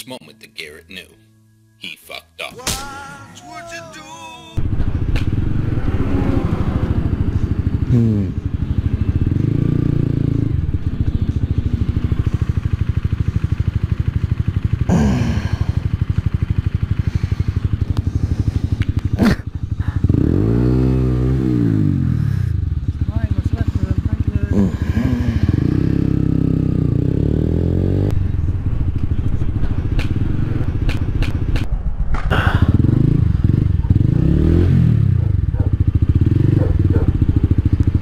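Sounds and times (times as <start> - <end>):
motorcycle engine revving: 4.6 - 31.8, 32.4 - 38.0
sharp click: 30.8 - 32.3.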